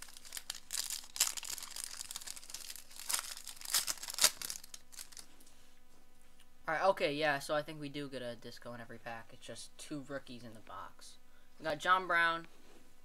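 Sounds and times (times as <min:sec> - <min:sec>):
card pack wrapper crinkling and tearing: 0:00.0 - 0:05.3.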